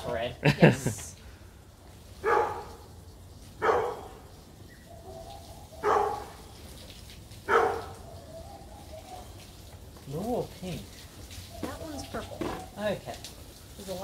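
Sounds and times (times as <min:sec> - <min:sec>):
dog barking: 0:02.2 - 0:02.8, 0:03.6 - 0:04.2, 0:05.0 - 0:06.4, 0:07.5 - 0:09.3.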